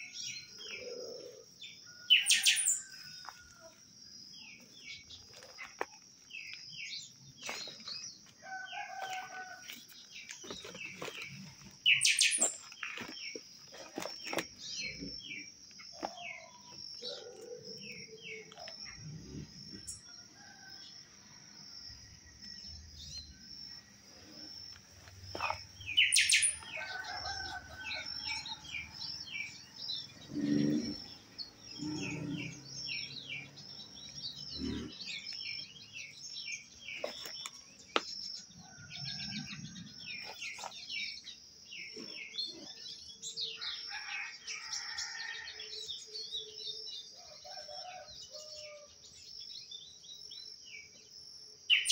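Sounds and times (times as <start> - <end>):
high bird trill: 0.0 - 3.0, 25.4 - 27.1
birds chirping and calling: 0.0 - 20.1, 24.8 - 48.9.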